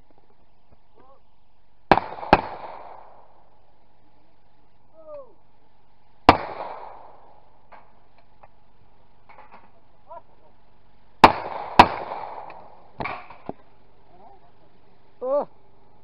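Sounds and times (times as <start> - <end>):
shotgun shots echoing: 1.9 - 3.5, 6.3 - 8.0, 11.2 - 13.5.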